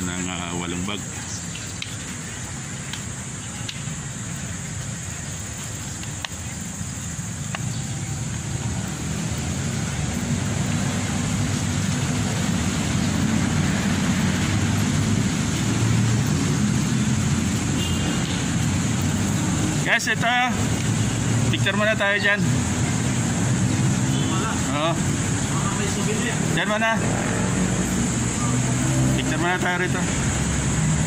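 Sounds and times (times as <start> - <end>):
road traffic rumble: 0.0 - 31.0
faint ticks: 5.6 - 6.6, 7.4 - 7.8.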